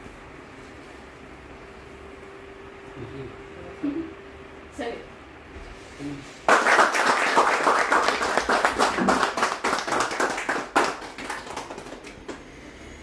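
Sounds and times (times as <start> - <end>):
people clapping: 6.5 - 12.5.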